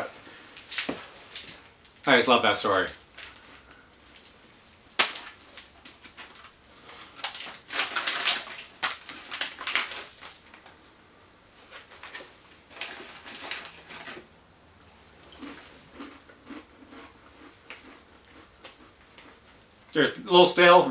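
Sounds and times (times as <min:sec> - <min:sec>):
packaging crinkling: 0:05.0 - 0:10.8, 0:11.7 - 0:14.3.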